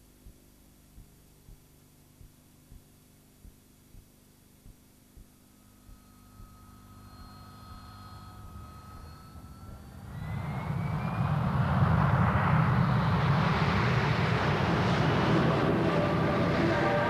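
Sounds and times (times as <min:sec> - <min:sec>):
jet engine whine and rush: 0:07.1 - 0:17.0.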